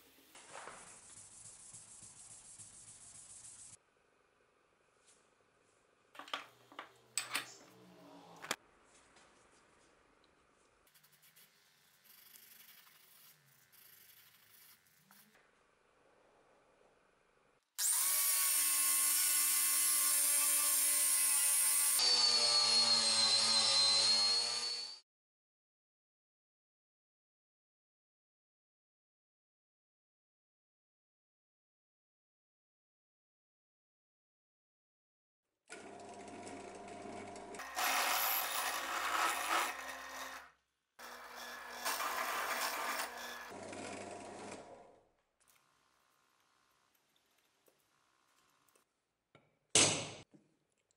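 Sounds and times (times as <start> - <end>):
angle grinder whining on steel: 17.8 - 25.0, 37.6 - 43.8
drill bit cutting metal: 17.8 - 25.0, 41.0 - 43.5.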